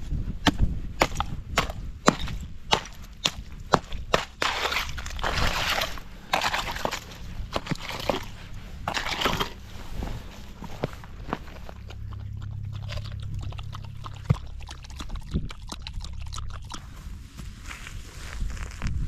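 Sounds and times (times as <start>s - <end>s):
dog lapping water: 4.4s - 9.5s, 11.7s - 16.9s.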